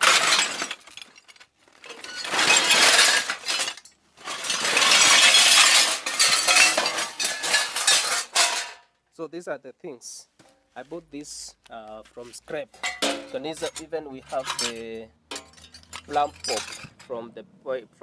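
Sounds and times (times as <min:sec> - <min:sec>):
metal pieces scraping and clinking: 0:00.0 - 0:08.8, 0:12.7 - 0:17.2.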